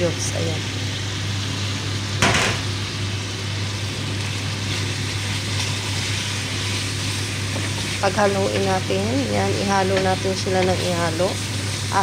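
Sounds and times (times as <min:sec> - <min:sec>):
chicken sizzling in a pot: 0:00.0 - 0:12.0.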